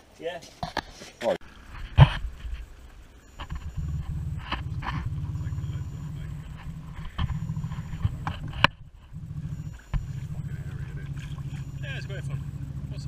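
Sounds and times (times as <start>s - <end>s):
outboard motor running: 3.4s - 13.0s.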